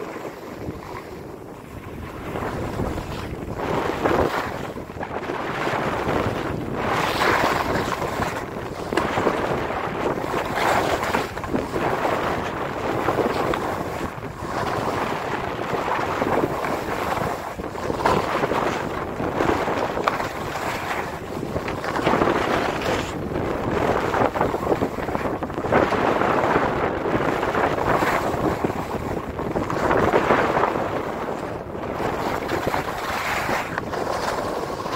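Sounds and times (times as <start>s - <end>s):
wind on microphone: 0.0s - 34.9s
skis scraping on snow: 10.3s - 12.4s, 32.0s - 34.9s.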